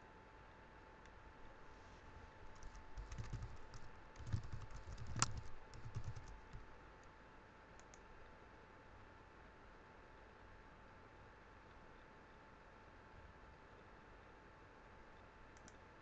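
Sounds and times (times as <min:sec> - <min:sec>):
faint steady hum: 0:00.0 - 0:16.0
keyboard key clicks: 0:02.5 - 0:06.6.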